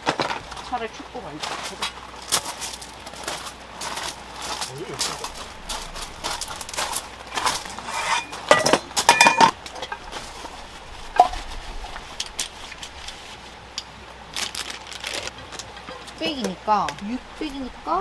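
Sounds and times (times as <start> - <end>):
metal bowls and plates clinking: 7.3 - 10.1.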